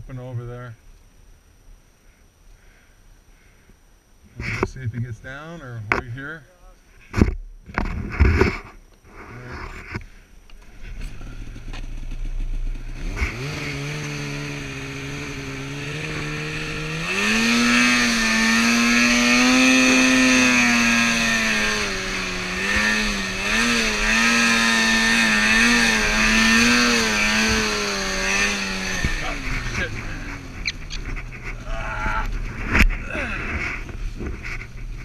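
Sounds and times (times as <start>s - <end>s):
snowmobile engine revving: 10.6s - 35.0s.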